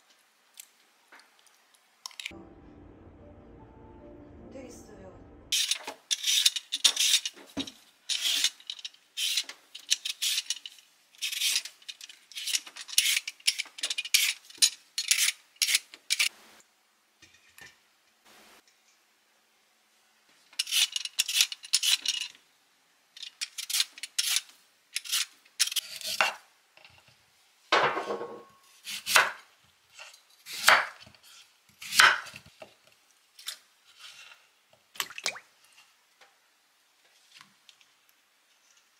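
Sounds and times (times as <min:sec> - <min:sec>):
vegetable peeler scraping: 0:05.6 - 0:07.4, 0:08.1 - 0:08.6, 0:09.2 - 0:11.7, 0:12.3 - 0:16.3, 0:20.6 - 0:22.1, 0:23.4 - 0:26.2.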